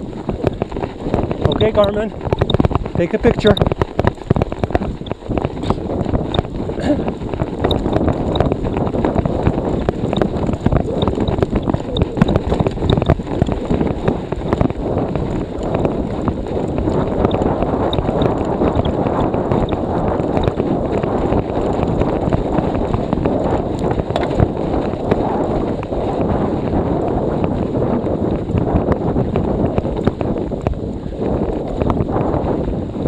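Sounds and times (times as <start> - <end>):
wind buffeting microphone: 0.0 - 33.0
bike clicks and knocks: 24.1 - 24.4.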